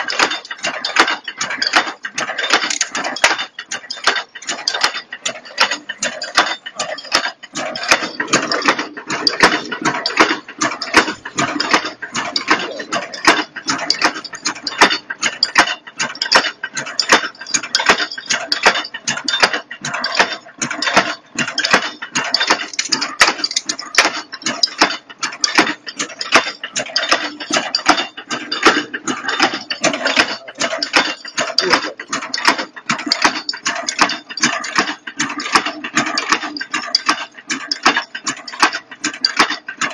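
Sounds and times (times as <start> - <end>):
machine clattering: 0.0 - 39.9.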